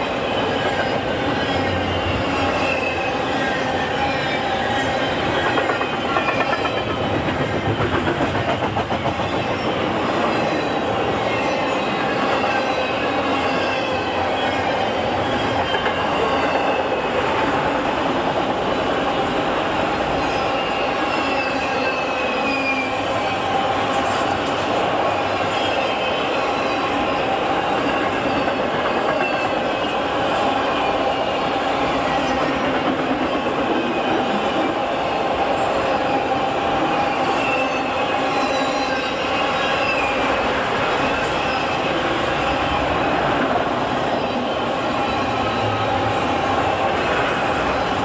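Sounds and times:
train wheels rumbling on rails: 0.0 - 48.0
high wheel squeals: 0.2 - 7.1, 9.4 - 17.1, 20.2 - 24.4, 25.1 - 31.4, 36.9 - 43.0.

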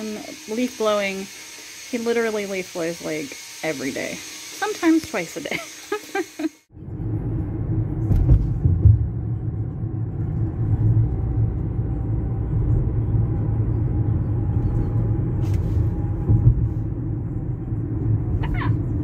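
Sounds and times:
car driving rumble: 6.7 - 19.0.

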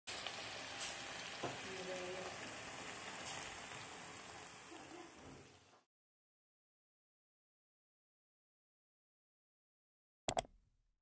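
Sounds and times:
meat sizzling in a wok: 0.1 - 5.9.

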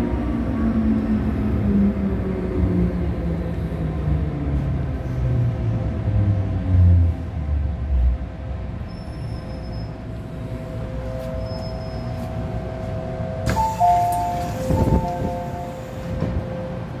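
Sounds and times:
train whine: 8.7 - 17.0
doors opening clatter: 13.4 - 16.5.

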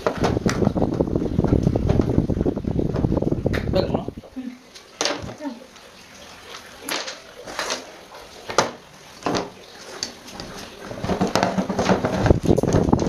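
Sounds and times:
rattling scrape: 10.9 - 12.9.

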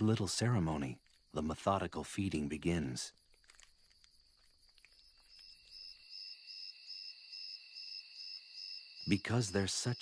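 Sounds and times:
night insects chirring: 0.0 - 10.0.

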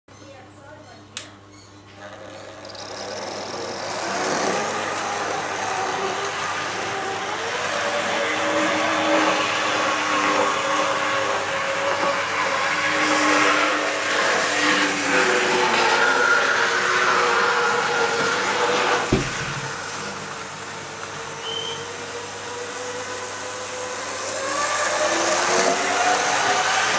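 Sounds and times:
sharp click: 1.2 - 1.4
model train running on track: 22.4 - 26.9.

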